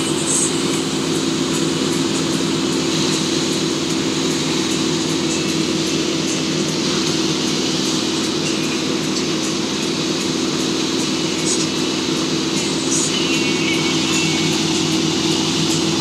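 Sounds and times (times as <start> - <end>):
boat engine drone: 0.0 - 16.0.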